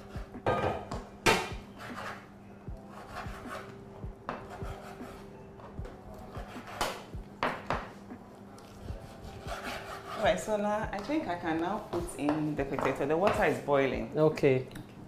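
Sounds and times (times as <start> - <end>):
pots dishes and cutlery clinking: 0.4 - 1.5.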